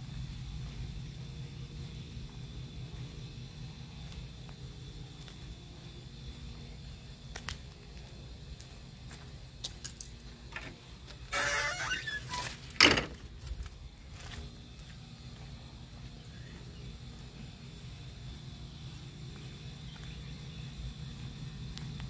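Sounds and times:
low steady rumble: 0.0 - 22.0
gate scraping creak: 11.3 - 13.2.

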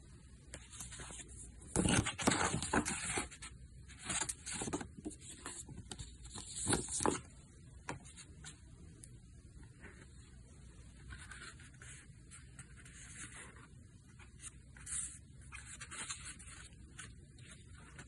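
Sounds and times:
thick paper rustling: 0.6 - 7.3.

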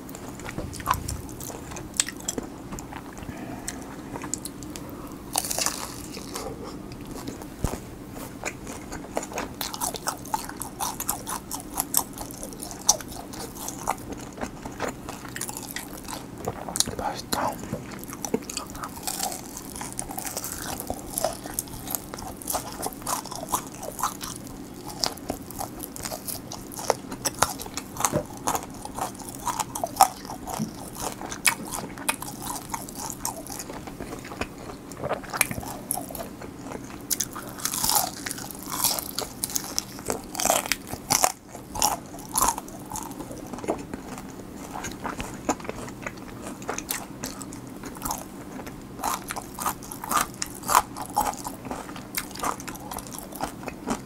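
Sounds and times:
crunchy fried chicken chewing: 0.0 - 54.0
biting pickled radish crunch: 4.3 - 7.4, 18.2 - 48.3.

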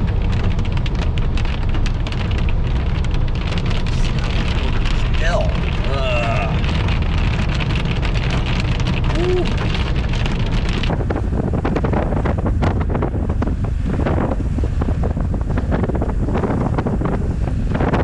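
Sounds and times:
car tyres hissing on wet road: 0.0 - 18.0
rain ticking on windshield: 0.0 - 18.0
wind buffeting microphone: 0.0 - 18.0.

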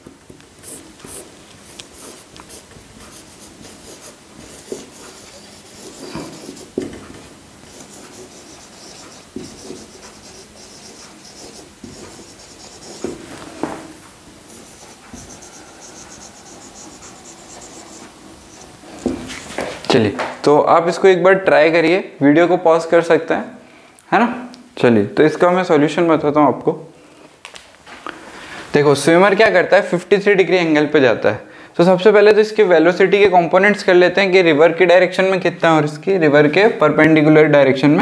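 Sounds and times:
pen scratching on paper: 0.6 - 6.8, 7.6 - 13.2, 14.5 - 19.6.

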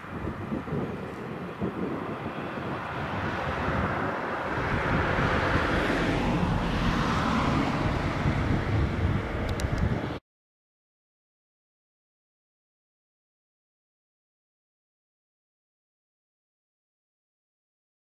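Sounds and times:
distant train rumbling past: 0.0 - 10.2.

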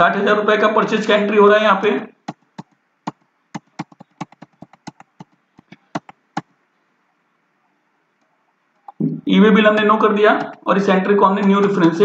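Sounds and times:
computer keyboard clicks: 2.3 - 6.5.

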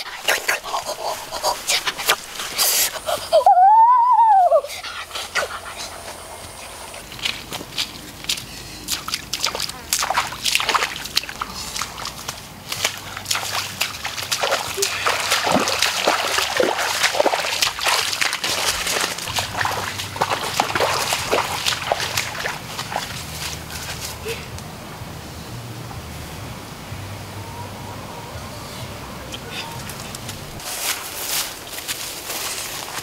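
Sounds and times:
bare feet splashing in muddy water: 0.0 - 3.4, 5.4 - 24.6, 29.3 - 33.0.

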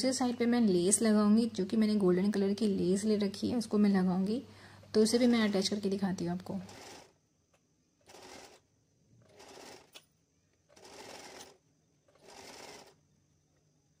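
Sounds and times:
sewing machine stitching: 6.4 - 7.2, 8.0 - 10.0, 10.7 - 13.0.

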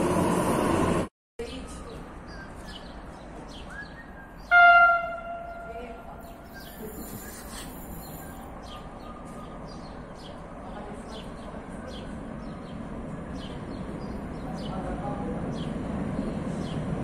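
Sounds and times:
small birds chirping: 1.4 - 17.0
train horn blast: 4.5 - 6.4.

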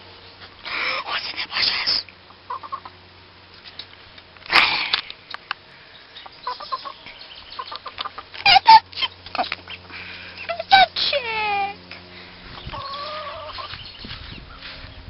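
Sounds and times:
chicken clucking and squawking: 2.3 - 3.0, 6.2 - 10.9, 12.4 - 14.8.

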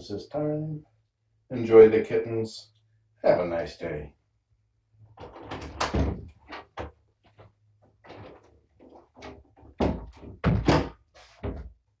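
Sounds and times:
kittens thumping and knocking: 8.0 - 11.8.

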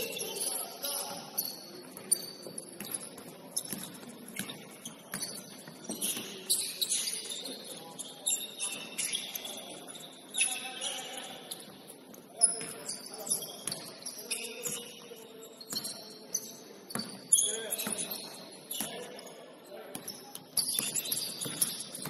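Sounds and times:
sneakers squeaking on floor: 0.0 - 22.0
basketball bouncing: 2.8 - 6.4.

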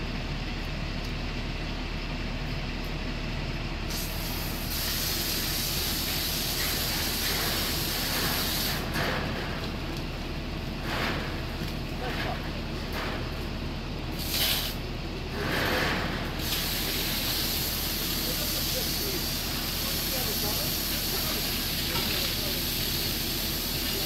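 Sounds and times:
fire hose spray hissing: 3.9 - 8.9, 14.2 - 14.8, 16.4 - 24.0.

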